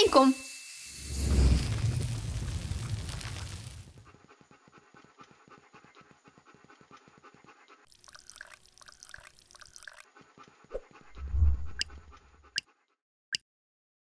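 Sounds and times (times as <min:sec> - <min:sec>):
cartoon dog panting: 0:04.0 - 0:07.9, 0:10.0 - 0:13.0
trickling stream: 0:07.9 - 0:10.1.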